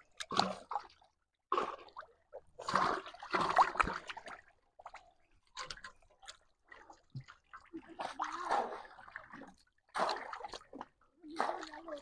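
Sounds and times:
muddy water sloshing and splashing: 0.0s - 12.0s.

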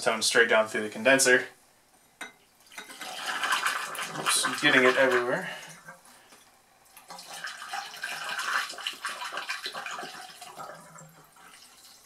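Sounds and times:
liquid gurgling and splashing: 2.8s - 5.9s, 7.0s - 12.0s.

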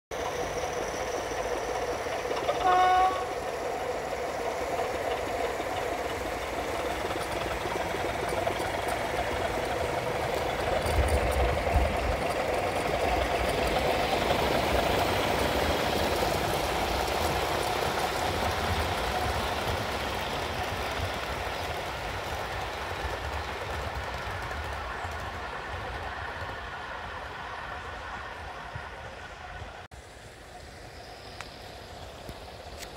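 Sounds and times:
model locomotive diesel engine hum: 0.1s - 32.9s
locomotive horn blast: 2.4s - 3.4s.

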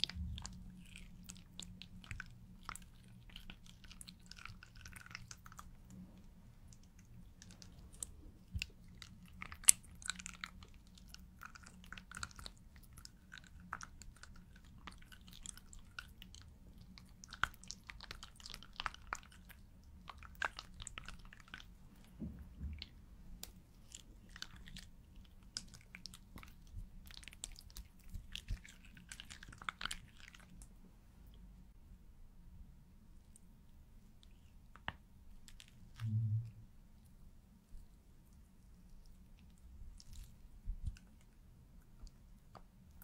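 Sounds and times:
faint low hum: 0.0s - 43.0s.

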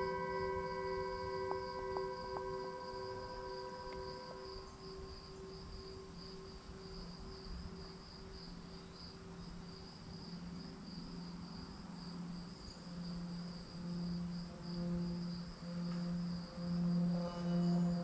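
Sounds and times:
crickets chirping: 0.0s - 18.0s
soft sustained low tones: 0.0s - 18.0s.

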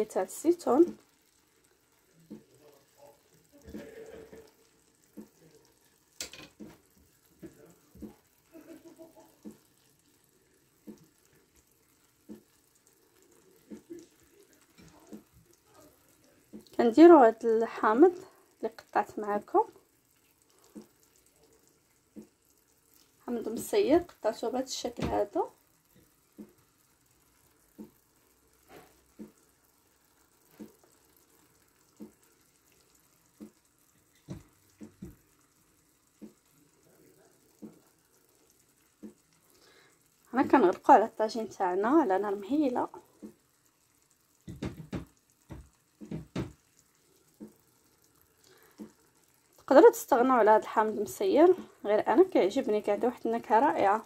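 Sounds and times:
sauce sizzling faintly: 0.0s - 54.0s
soft knocks: 44.5s - 46.6s.

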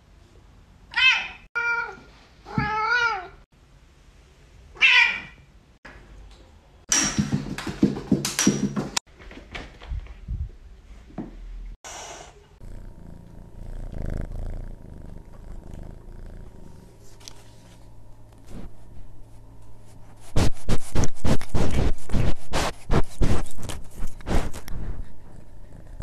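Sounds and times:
cat purring: 12.6s - 26.0s.

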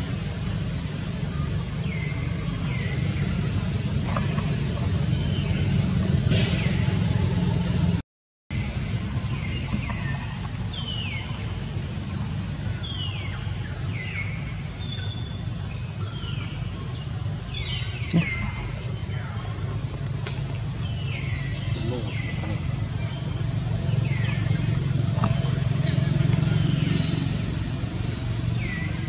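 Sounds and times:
birds chirping: 0.0s - 29.0s.

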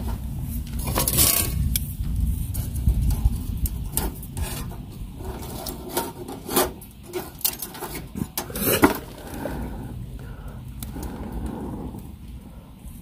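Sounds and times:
metal tongs scraping in stove: 0.7s - 9.4s.

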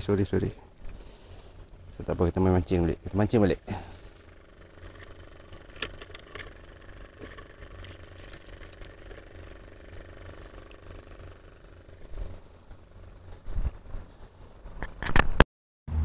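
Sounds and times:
faint steady hum: 0.0s - 15.0s
low wind rumble on microphone: 12.0s - 14.9s.

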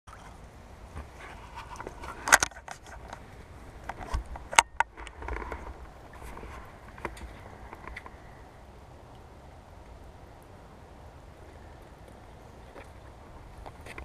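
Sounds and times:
clothing rustling and scraping: 0.1s - 7.6s.

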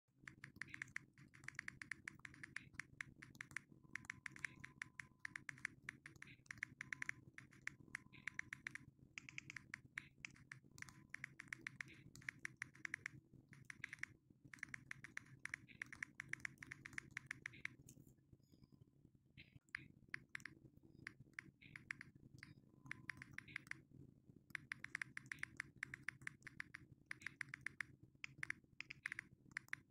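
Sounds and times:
phone keyboard clicks: 0.3s - 17.8s, 22.9s - 23.8s, 24.5s - 29.9s.

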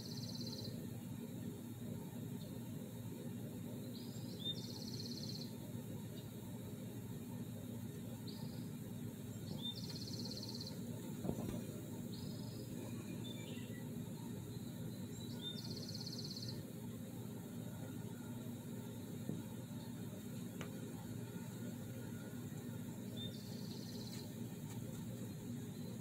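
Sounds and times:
low background hum: 0.0s - 26.0s.

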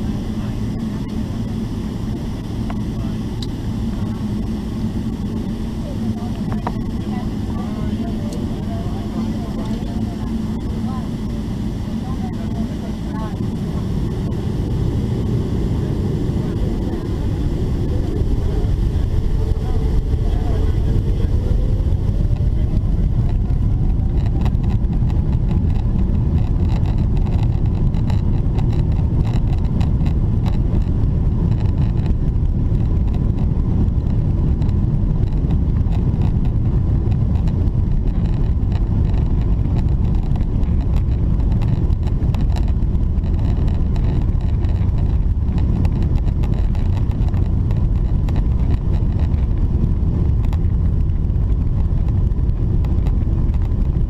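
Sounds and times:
jet engines whining: 0.0s - 28.1s
engine and runway rumble: 0.0s - 54.0s.

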